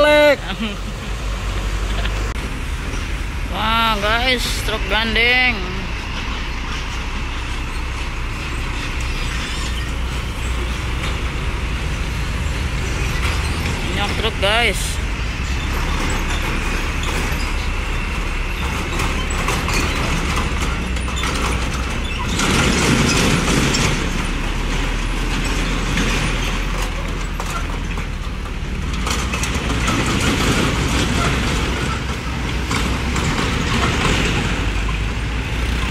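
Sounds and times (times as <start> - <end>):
motorbikes passing: 0.0 - 27.5
trucks driving past: 0.0 - 35.9.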